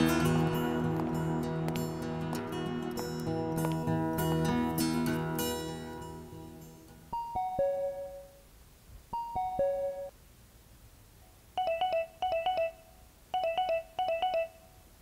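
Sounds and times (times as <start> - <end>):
electronic chime tones: 7.2 - 8.4, 9.2 - 10.1, 11.6 - 14.7.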